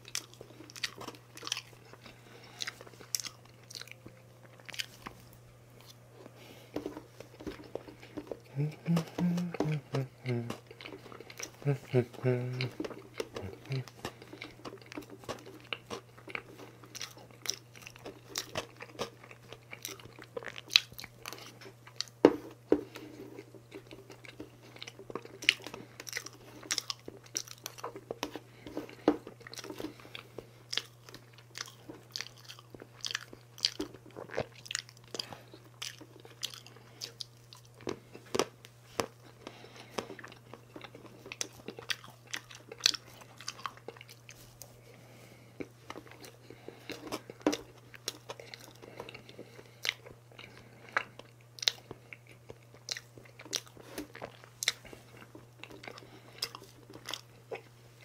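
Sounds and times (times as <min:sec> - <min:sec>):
chewing and lip smacks: 0:00.0 - 0:57.8
steady low hum: 0:00.0 - 0:58.0.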